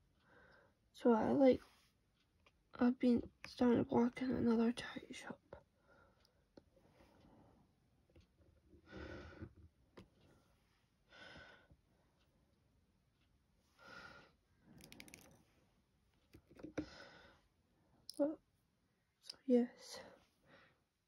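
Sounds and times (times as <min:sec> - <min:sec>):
soft breaths: 0:00.1 - 0:00.8, 0:04.8 - 0:15.8, 0:16.7 - 0:18.1, 0:18.9 - 0:21.0.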